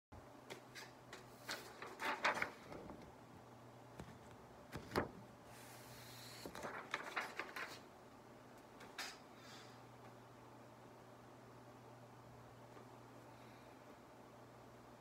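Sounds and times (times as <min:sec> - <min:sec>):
low room hum: 0:00.1 - 0:15.0
paper rustle: 0:00.8 - 0:03.0, 0:04.0 - 0:07.9.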